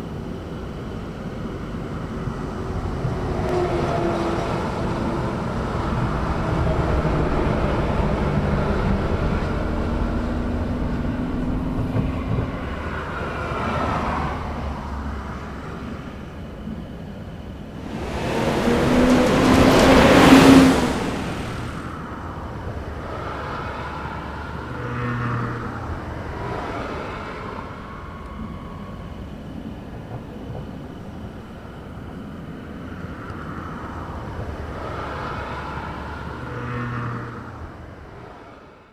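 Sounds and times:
background traffic: 0.0 - 38.9
vehicle passing close: 17.7 - 22.1.

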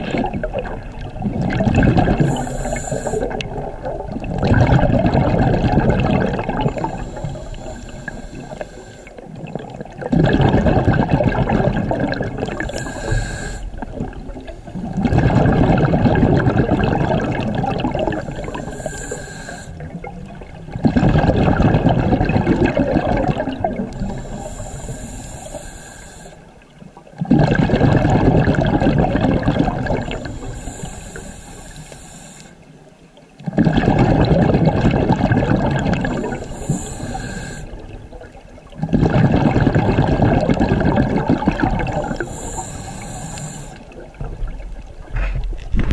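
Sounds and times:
exhaled bubbles gurgling: 0.0 - 45.9
regulator inhale hiss: 2.1 - 3.6, 6.6 - 9.3, 12.6 - 13.8, 18.1 - 19.9, 23.9 - 26.6, 30.1 - 32.8, 36.0 - 37.8, 41.9 - 44.0.

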